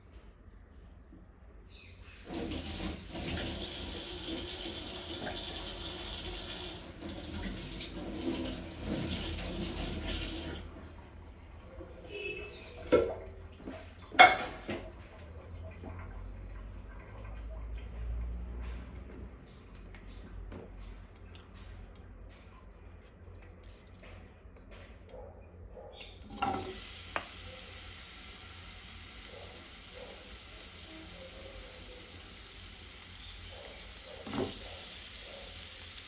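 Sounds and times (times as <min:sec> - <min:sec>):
water running from tap: 0:02.0 - 0:10.7, 0:26.2 - 0:36.0.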